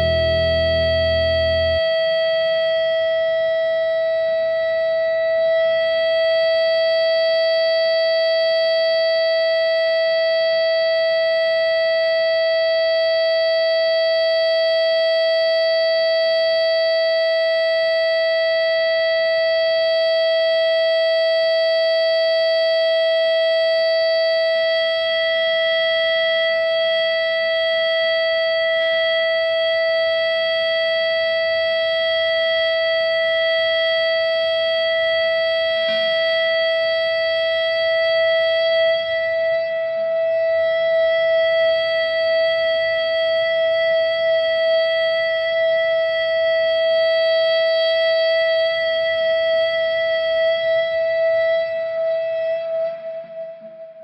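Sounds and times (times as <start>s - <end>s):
distorted electric guitar sustained note: 0.0s - 2.6s.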